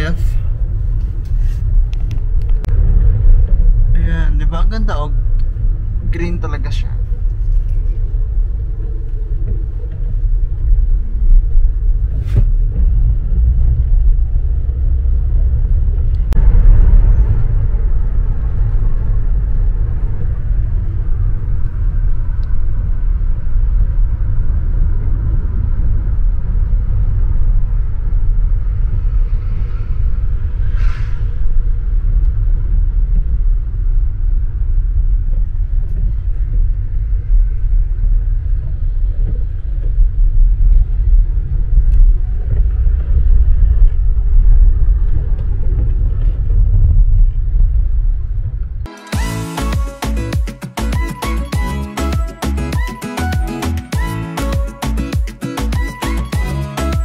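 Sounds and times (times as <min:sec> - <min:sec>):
car interior road rumble: 0:00.0 - 0:48.9
short rush of hiss: 0:30.6 - 0:31.4.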